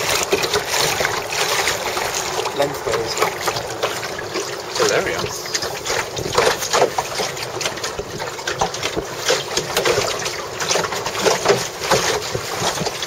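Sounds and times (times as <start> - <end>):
water slapping against hull: 0.0 - 13.0.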